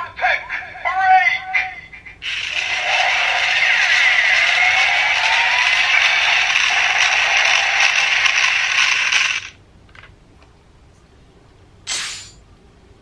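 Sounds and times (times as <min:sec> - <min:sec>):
short noise burst: 0:02.2 - 0:09.6
toy harsh whirring: 0:02.2 - 0:09.6.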